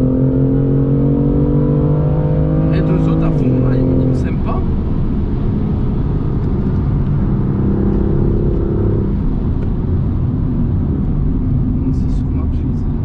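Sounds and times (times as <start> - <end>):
car engine at speed: 0.0 - 13.0
tyre and road rumble: 0.0 - 13.0.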